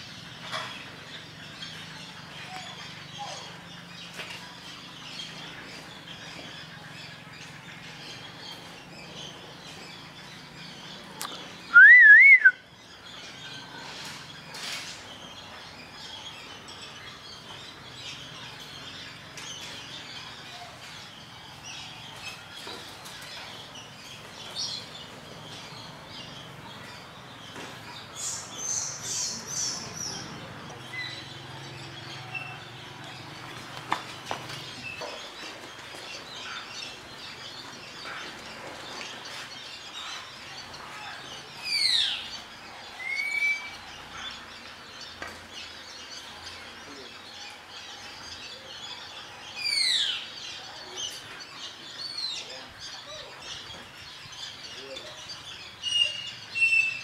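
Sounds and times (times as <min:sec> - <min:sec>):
high bird chirps: 0:00.0 - 0:33.4
bird warbling whistle: 0:11.7 - 0:12.6.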